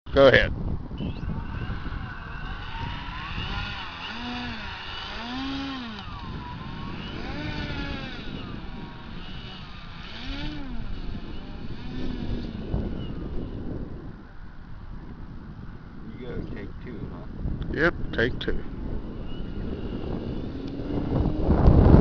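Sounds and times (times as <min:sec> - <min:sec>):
wind on microphone: 0:00.1 - 0:22.0
model airplane engine running: 0:01.0 - 0:14.2, 0:17.9 - 0:22.0.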